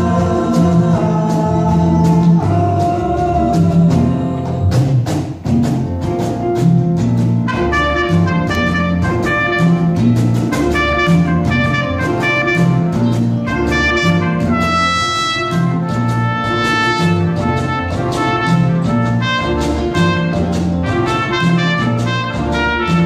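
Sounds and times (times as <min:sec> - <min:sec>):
electric bass line: 0:00.0 - 0:23.0
hand percussion: 0:00.0 - 0:23.0
trumpet melody: 0:07.5 - 0:23.0.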